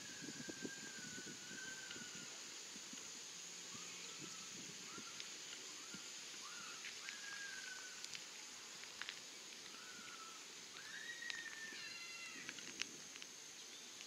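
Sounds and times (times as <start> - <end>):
bird whistling calls: 0.0 - 2.4, 3.7 - 8.1, 9.7 - 12.4
steady high hiss: 0.0 - 14.0.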